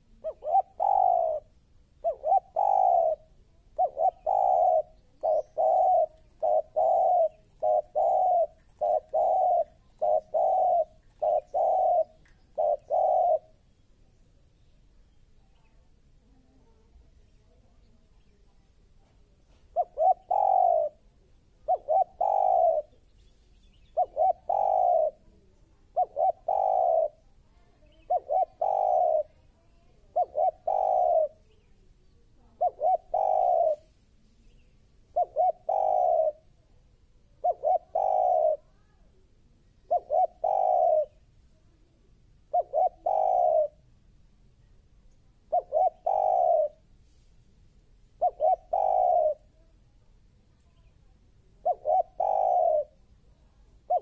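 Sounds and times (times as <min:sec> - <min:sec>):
dove cooing: 0:00.0 - 0:13.6, 0:19.5 - 0:23.1, 0:23.9 - 0:31.5, 0:32.4 - 0:34.0, 0:35.1 - 0:36.6, 0:37.2 - 0:38.9, 0:39.8 - 0:41.2, 0:42.4 - 0:43.8, 0:45.3 - 0:46.9, 0:48.1 - 0:49.7, 0:50.8 - 0:54.0.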